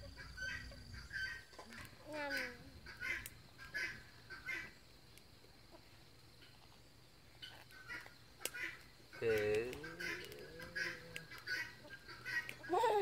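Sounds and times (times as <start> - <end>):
farmyard fowl calling: 0.0 - 4.8, 7.4 - 13.0.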